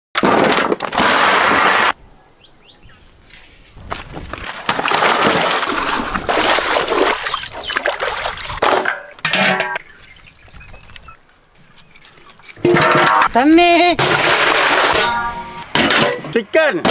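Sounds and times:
water splashing and sloshing: 0:03.8 - 0:13.4.

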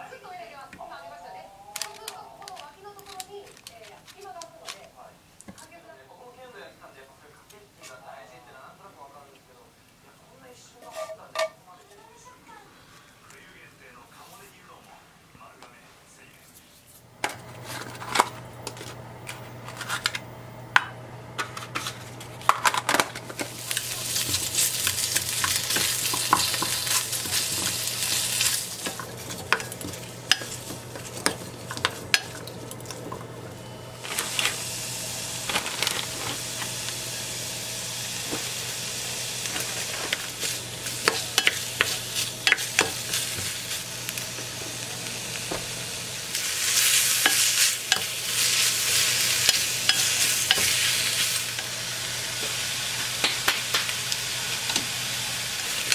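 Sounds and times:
vegetables and meat sizzling: 0:00.0 - 0:04.8, 0:17.1 - 0:55.9
wooden spatula scraping a pot: 0:10.8 - 0:12.0.

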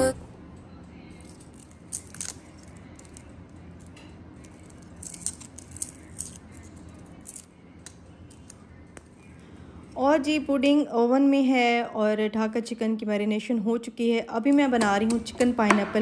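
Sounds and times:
dry garlic skins crackling: 0:01.2 - 0:03.4, 0:04.4 - 0:09.1.

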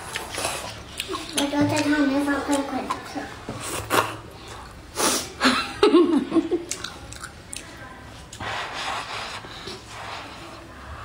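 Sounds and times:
chewing with wet mouth clicks: 0:00.0 - 0:03.0, 0:06.6 - 0:07.8.

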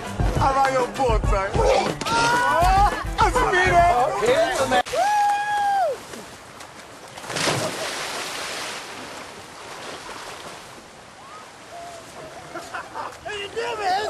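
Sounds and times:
churning water: 0:00.0 - 0:14.0
wind: 0:00.0 - 0:14.0
waves washing: 0:04.2 - 0:14.0
loud splash into water: 0:07.2 - 0:09.2.

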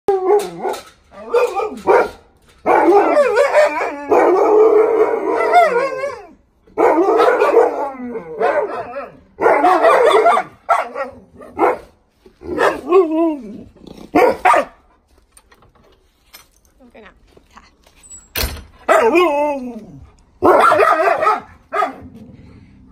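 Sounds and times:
dog howling: 0:18.9 - 0:21.4.

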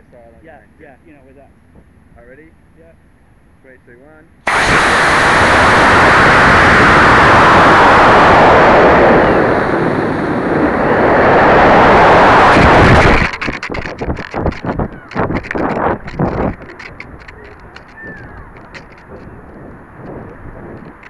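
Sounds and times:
rocket engine rush: 0:04.4 - 0:21.0
wind buffeting microphone: 0:04.5 - 0:21.0.

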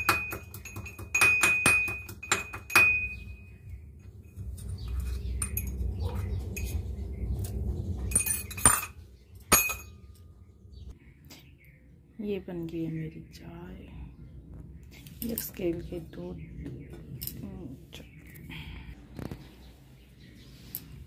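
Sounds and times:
metal kitchenware clinking: 0:00.0 - 0:03.5, 0:04.3 - 0:06.8, 0:08.1 - 0:10.3
low rumble: 0:03.0 - 0:11.2, 0:11.8 - 0:20.2.

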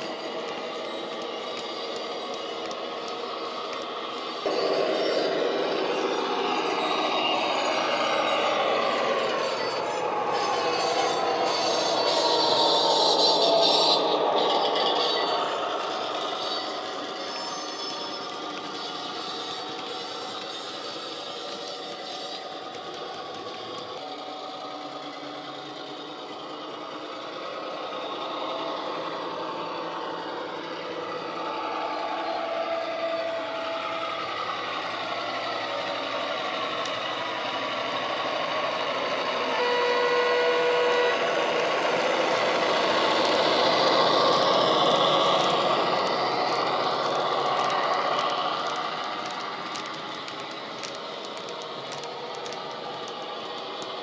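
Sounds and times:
model wheels clicking: 0:00.0 - 0:32.4, 0:41.8 - 0:54.0
model locomotive diesel engine: 0:00.0 - 0:54.0
locomotive horn: 0:39.2 - 0:44.3.

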